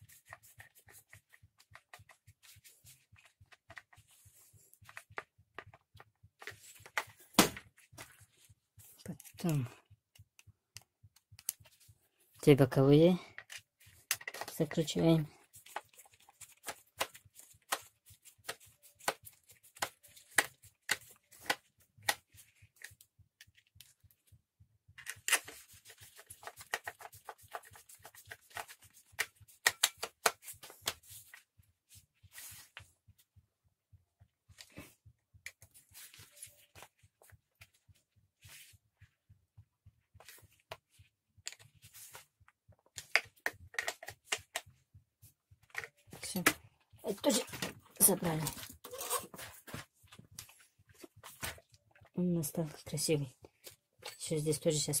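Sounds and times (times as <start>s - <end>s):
screwdriver clicks and scrapes: 25.0s - 25.6s.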